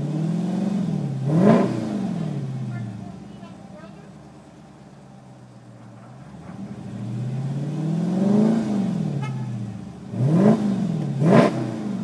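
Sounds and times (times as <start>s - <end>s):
car engine idling and revving: 0.0s - 12.0s.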